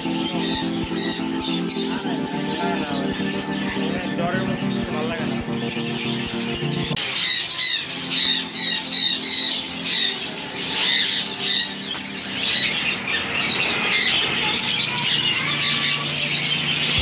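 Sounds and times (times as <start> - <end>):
caged birds squawking: 0.0 - 17.0.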